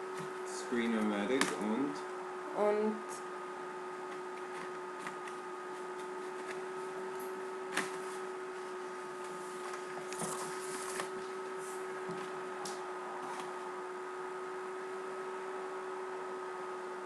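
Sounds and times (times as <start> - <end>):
electrical hum: 0.0 - 17.0
small handling noises: 4.0 - 13.6.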